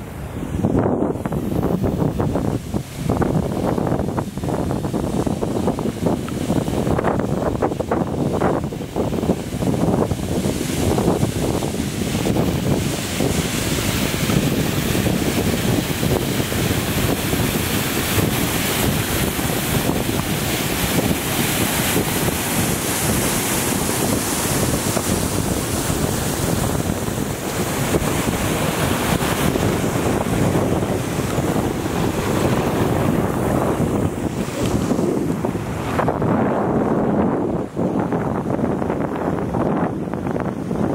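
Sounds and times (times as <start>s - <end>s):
wind buffeting microphone: 0.0s - 40.9s
slurry gushing from pipe: 1.9s - 36.2s.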